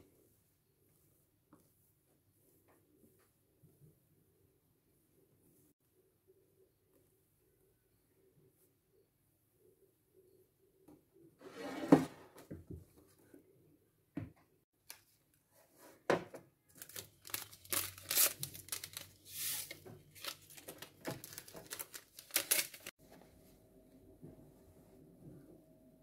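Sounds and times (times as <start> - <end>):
paper sachets crinkling and ripping: 16.7 - 22.9.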